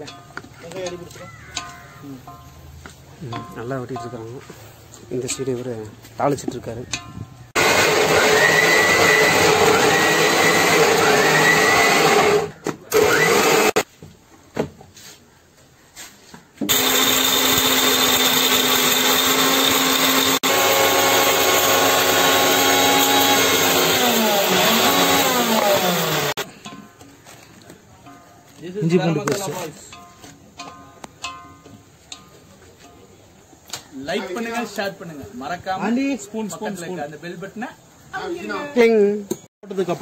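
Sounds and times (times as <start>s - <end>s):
mixer grinder motor running: 7.6s - 13.8s, 16.7s - 26.4s.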